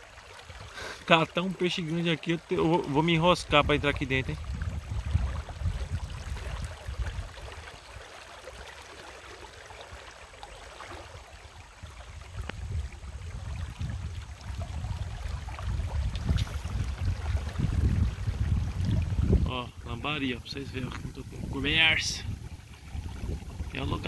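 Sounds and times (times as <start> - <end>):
flowing river water: 0.0 - 24.0
wind buffeting microphone: 3.2 - 7.7, 11.8 - 24.0.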